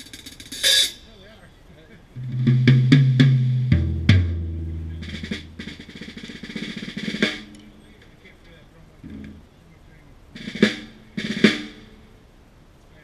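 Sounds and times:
tom drum hits: 2.2s - 7.5s
snare drum roll: 2.2s - 7.6s, 10.4s - 12.0s
lower tom ringing: 2.2s - 8.4s.

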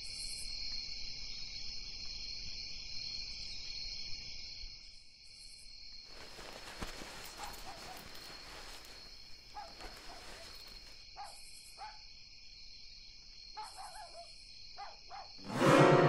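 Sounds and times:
rustling of cotton shirts: 6.1s - 11.0s.

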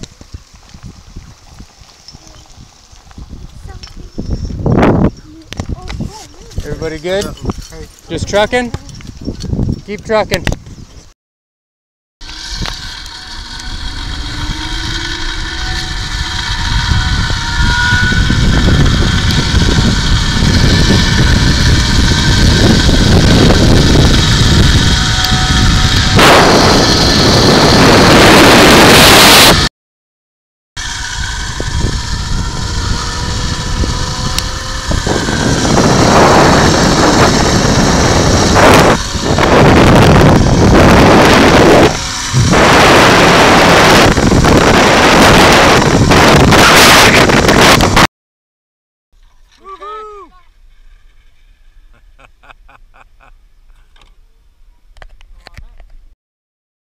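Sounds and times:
zipline pulleys whirring: 0.0s - 9.9s, 12.2s - 29.7s, 30.8s - 48.1s, 49.2s - 54.3s
wind buffeting microphone: 0.0s - 11.1s, 12.3s - 29.6s, 30.8s - 48.1s
rush of air: 31.2s - 48.1s.

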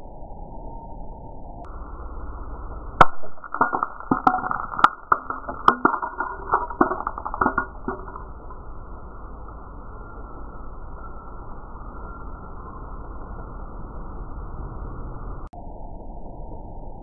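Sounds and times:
glass jar shattering: 3.0s - 8.6s
glass shards clattering on stone: 3.0s - 8.6s.

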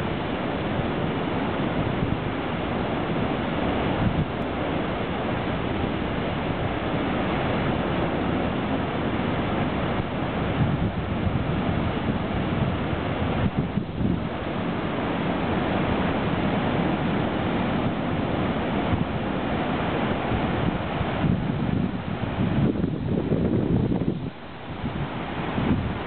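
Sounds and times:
wind buffeting microphone: 0.0s - 4.5s, 9.8s - 15.0s, 17.8s - 26.0s
storm waves breaking on rocks: 0.0s - 26.0s.

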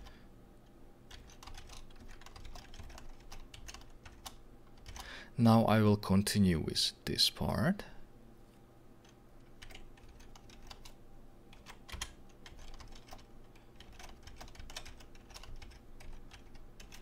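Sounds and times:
typing on computer keyboard: 1.1s - 5.1s, 9.0s - 17.0s.

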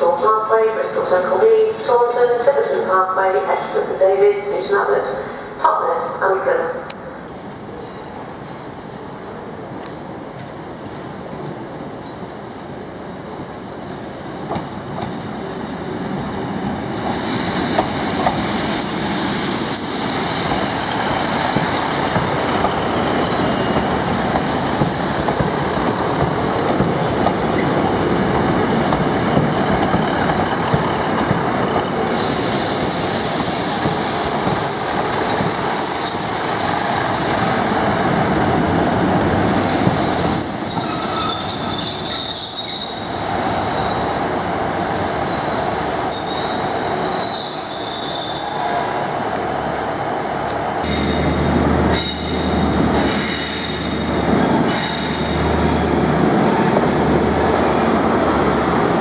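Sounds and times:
diesel train engines: 0.0s - 59.0s
train wheels on rails: 13.2s - 59.0s
high-pitched wheel squeals: 40.3s - 44.0s, 45.4s - 48.8s.

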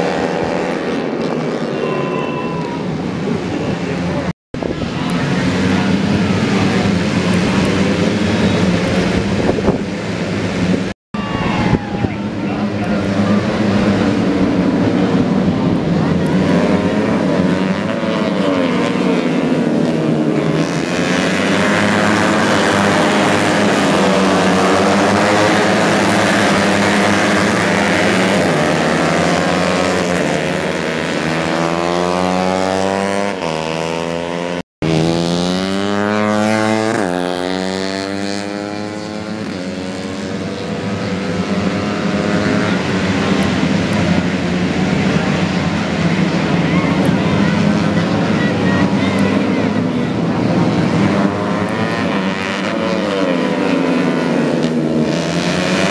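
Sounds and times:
racing motorcycles passing: 0.0s - 55.9s.

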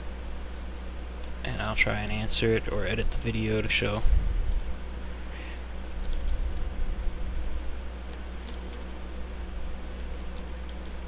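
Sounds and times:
low hum: 0.0s - 11.0s
keyboard and mouse clicking: 5.8s - 6.7s, 7.6s - 11.0s.

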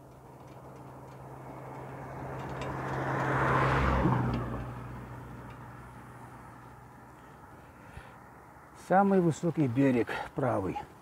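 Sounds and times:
car passing by: 1.2s - 8.8s.

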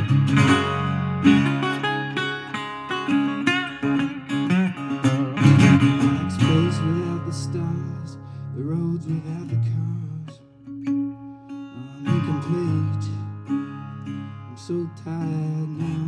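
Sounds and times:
resonator guitar blues playing: 0.0s - 16.0s
man singing: 5.4s - 10.6s, 11.7s - 13.7s, 14.4s - 16.0s.

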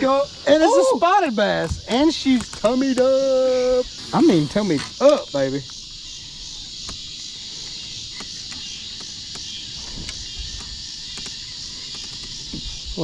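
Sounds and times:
high-pitched insect chorus: 0.0s - 13.0s
faint clicks: 8.1s - 12.6s.

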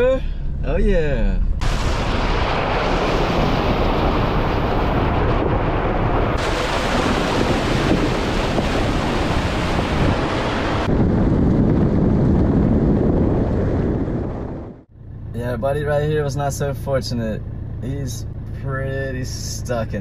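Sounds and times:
low vehicle rumble: 0.0s - 20.0s
wind buffeting microphone: 1.5s - 14.9s.

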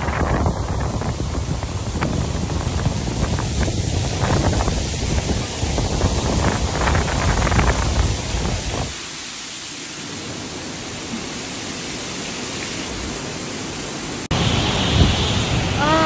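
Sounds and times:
gusts buffeting microphone: 0.0s - 9.1s, 12.9s - 16.0s
wind and heavy rain hissing: 0.0s - 16.0s.

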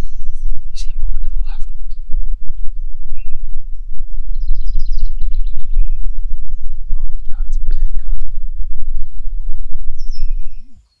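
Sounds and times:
loud low rumble on microphone: 0.0s - 11.0s
small bird chirping: 0.0s - 11.0s.

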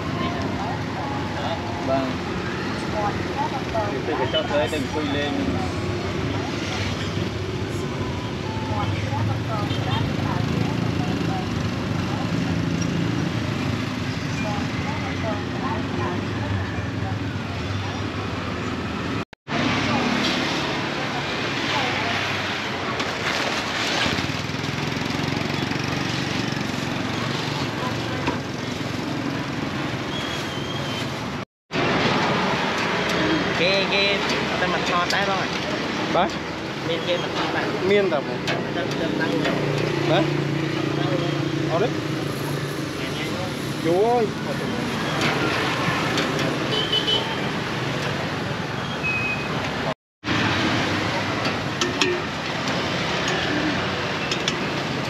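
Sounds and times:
motorbikes and cars passing: 0.0s - 55.0s
street noise: 0.0s - 55.0s.

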